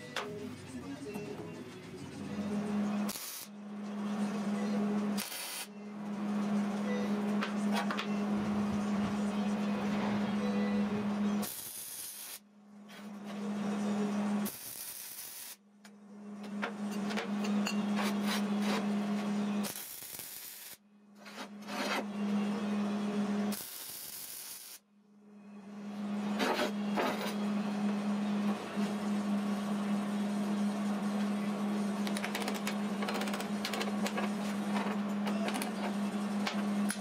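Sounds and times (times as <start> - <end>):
welder arc buzzing and hissing: 3.0 - 5.7, 11.3 - 12.4, 13.4 - 15.6, 17.9 - 24.8.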